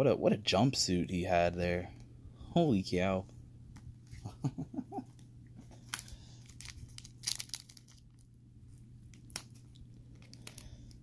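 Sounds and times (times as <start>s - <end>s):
card pack wrapper crinkling: 5.8s - 11.0s.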